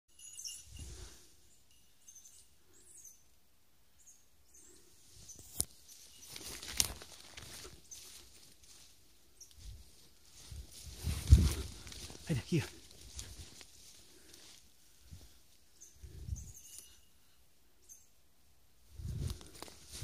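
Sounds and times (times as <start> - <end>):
faint high chirps: 0.1 - 6.6, 15.7 - 18.2
footsteps rustling through leaf litter: 6.1 - 9.0, 9.7 - 14.7.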